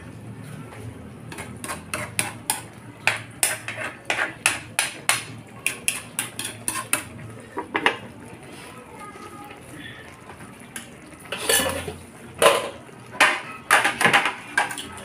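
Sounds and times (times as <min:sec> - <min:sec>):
metal spoon clanking on pan: 0:01.3 - 0:08.0, 0:10.8 - 0:15.0.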